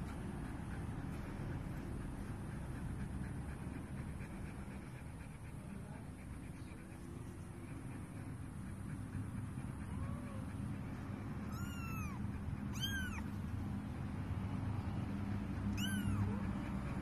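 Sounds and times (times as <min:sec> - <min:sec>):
kitten mewing: 0:11.4 - 0:13.4, 0:15.7 - 0:16.5.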